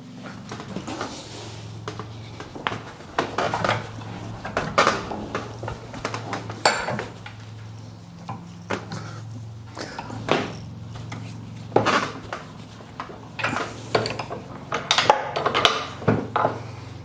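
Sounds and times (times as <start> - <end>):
steady low hum: 0.0 - 17.0
steel clinks and knocks in vise: 2.7 - 9.0, 13.4 - 16.7.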